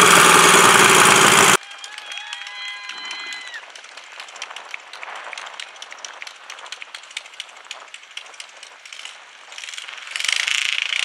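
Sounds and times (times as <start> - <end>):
loud steady noise: 0.0 - 1.6
crowd clapping: 0.0 - 7.5.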